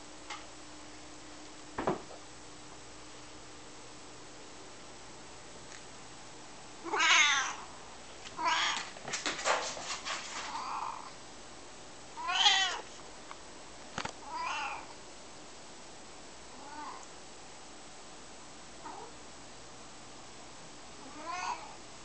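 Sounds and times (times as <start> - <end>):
cat meowing: 6.8 - 7.6, 8.4 - 8.9, 12.2 - 12.8, 14.2 - 14.9, 16.6 - 17.0, 18.8 - 19.1, 21.0 - 21.8.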